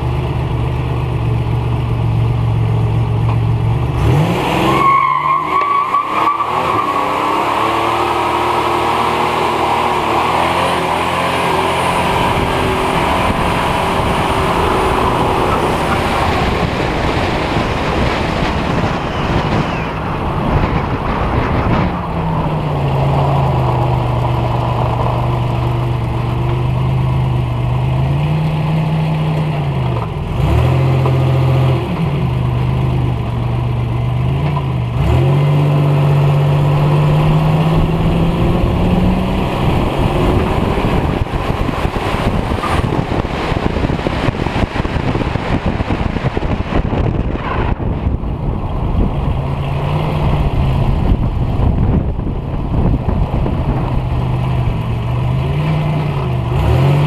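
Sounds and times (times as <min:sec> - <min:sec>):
wind and road noise: 0:00.0 - 0:57.0
car engine revving: 0:02.9 - 0:33.2, 0:34.0 - 0:57.0.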